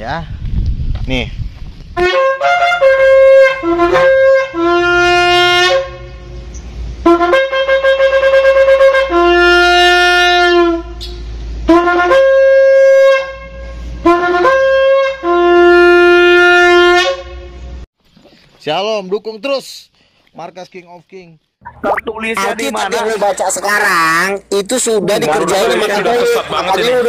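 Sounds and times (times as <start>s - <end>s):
shofar blasts: 2.0s - 6.4s, 7.0s - 17.6s
person breathing: 19.9s - 20.3s.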